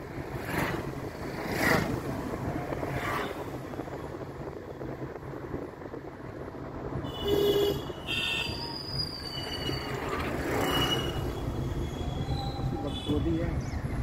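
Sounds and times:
vehicle rumbling on dirt road: 0:00.0 - 0:14.0
high-pitched squeals: 0:08.3 - 0:13.2.

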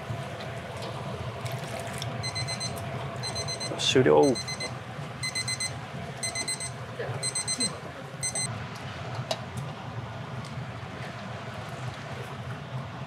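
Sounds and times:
high electronic beeps: 0:04.3 - 0:08.5.

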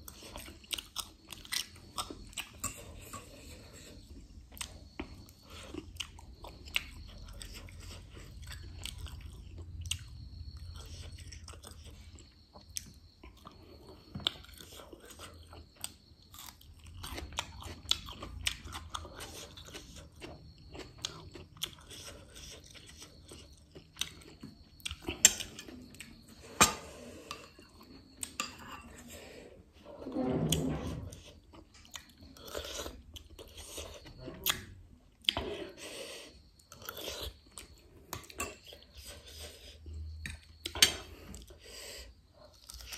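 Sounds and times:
close-up chewing and biting: 0:00.0 - 0:10.1, 0:10.8 - 0:26.2.

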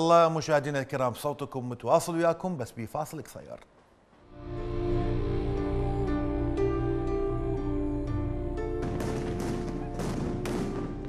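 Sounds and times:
slow sad music: 0:04.2 - 0:11.0.

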